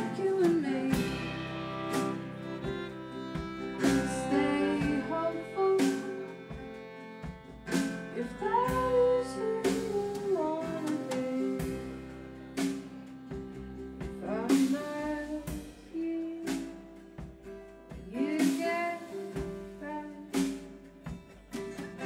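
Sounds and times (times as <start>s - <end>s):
violin melody: 0.0s - 17.4s
acoustic guitar chords strummed: 0.0s - 22.0s.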